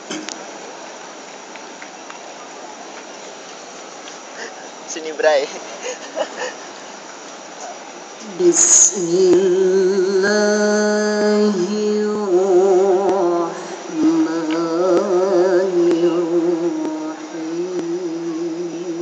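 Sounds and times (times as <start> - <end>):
woman chanting: 8.2 - 19.0.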